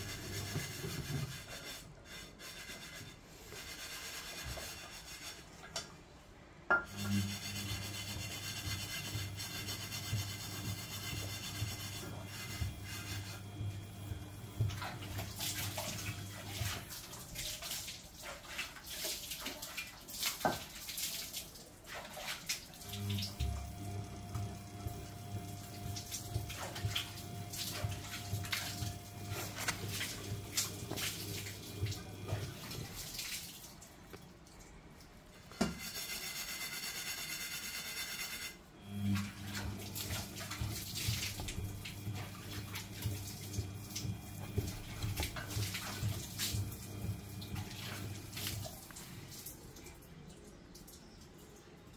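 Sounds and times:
washing machine motor hum: 0.0s - 19.8s, 21.9s - 50.2s
water sloshing in drum: 7.8s - 34.6s, 39.2s - 50.2s.

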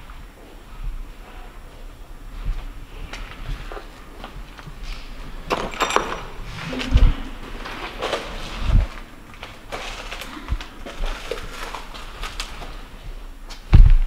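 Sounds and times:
knocks clicks and rustles: 3.1s - 13.7s
heavy low thumps: 6.3s - 7.8s, 13.7s - 14.0s.

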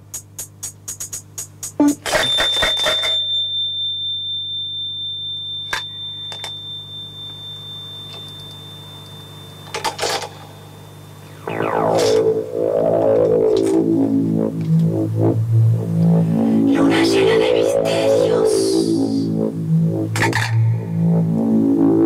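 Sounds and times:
high steady tone: 1.8s - 22.0s
low steady hum: 3.0s - 22.0s
low drone: 6.3s - 22.0s.

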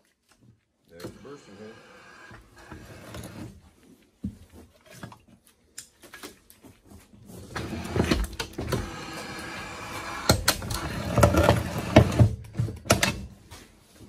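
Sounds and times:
steady machine whine: 7.7s - 12.2s.

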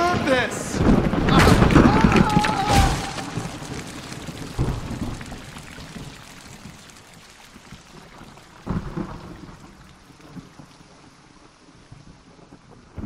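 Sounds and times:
steady rain: 0.0s - 13.0s
low rumbles of thunder: 0.7s - 6.8s.

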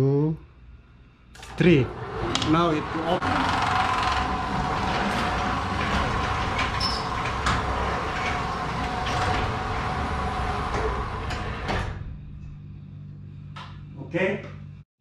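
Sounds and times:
garage door opener motor hum: 1.3s - 12.6s
door mechanism clicks: 1.4s - 12.0s
garage door shutting clunk: 1.4s - 12.2s.

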